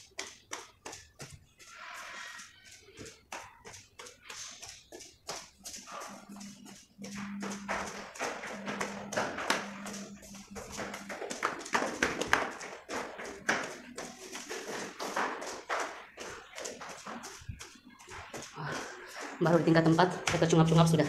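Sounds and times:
footsteps on concrete stairs: 0.0s - 21.0s
person panting: 18.4s - 19.4s.

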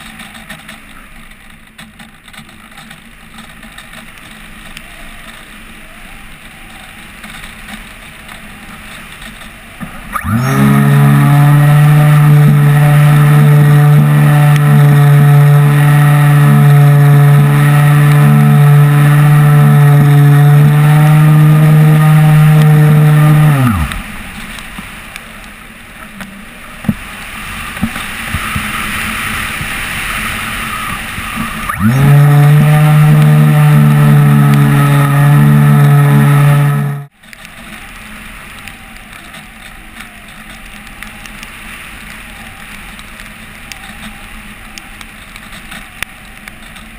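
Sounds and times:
model plane motor running: 10.1s - 24.1s, 31.4s - 37.1s.

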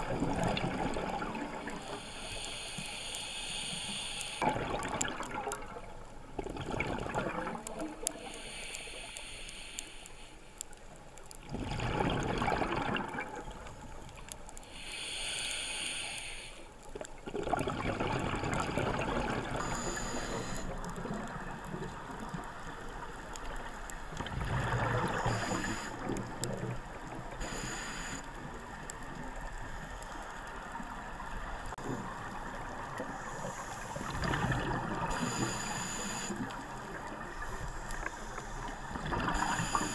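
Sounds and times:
exhaled bubbles underwater: 0.0s - 2.0s, 4.4s - 8.3s, 11.4s - 14.2s, 17.2s - 23.4s, 24.0s - 27.4s, 31.8s - 39.9s
regulator hissing inhalation: 1.8s - 4.4s, 8.2s - 10.4s, 14.7s - 16.7s, 19.6s - 20.8s, 25.2s - 26.0s, 27.4s - 28.3s, 35.1s - 36.6s, 39.4s - 39.9s.

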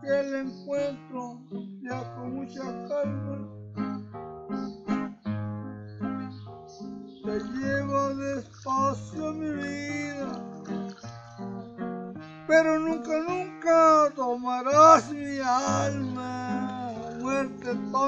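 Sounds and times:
man singing: 0.0s - 3.5s, 7.3s - 10.8s, 12.5s - 18.0s
acoustic guitar picking chords: 0.0s - 18.0s.

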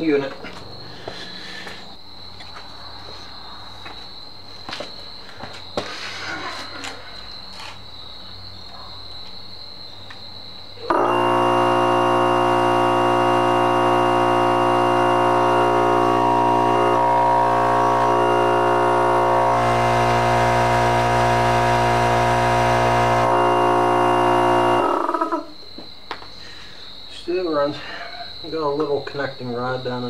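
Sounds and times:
compressor humming and buzzing: 10.8s - 25.4s.

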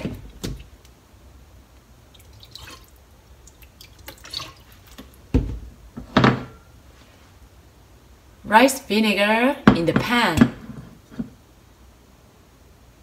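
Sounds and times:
liquid trickling and dripping: 2.1s - 5.2s.

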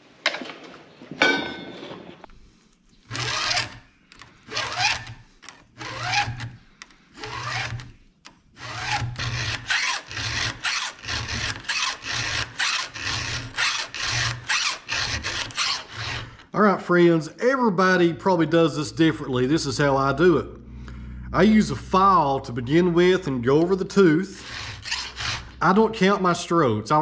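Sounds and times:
file scraping chainsaw teeth: 3.0s - 8.0s, 8.6s - 16.5s, 23.5s - 25.9s.

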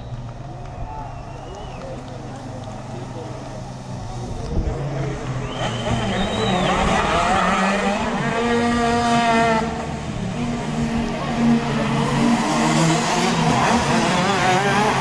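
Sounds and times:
kart engines running hard: 0.0s - 15.0s.

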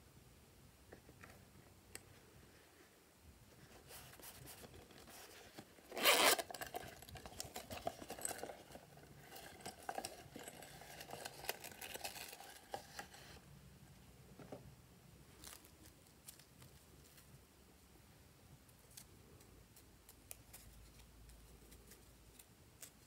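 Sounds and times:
rustles and scrapes of soft pouch: 3.5s - 13.5s
zipper pulled open: 5.8s - 8.4s.

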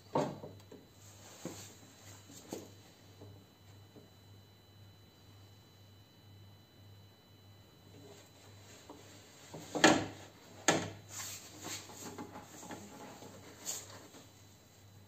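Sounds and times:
light metal knocks and scraping: 9.5s - 14.3s.

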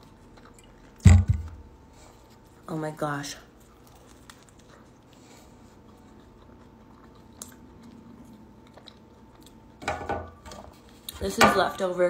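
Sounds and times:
soft wet chewing: 0.0s - 2.7s, 3.4s - 9.8s, 10.7s - 11.2s.

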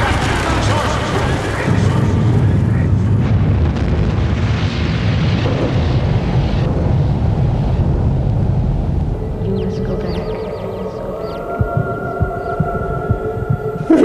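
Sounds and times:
explosion rumble: 0.0s - 11.0s.

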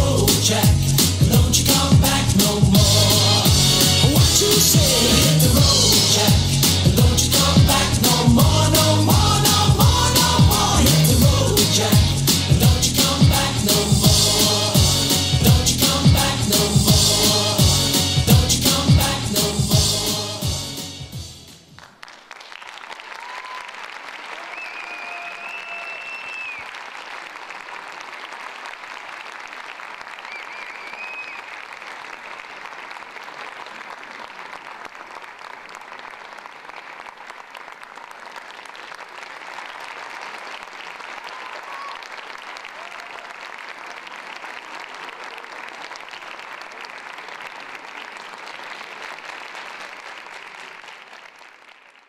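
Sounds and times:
audience applauding: 21.7s - 52.0s.

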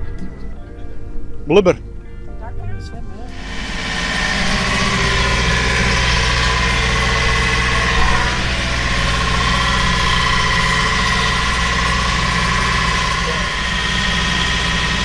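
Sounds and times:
boat engine droning: 3.0s - 15.0s.

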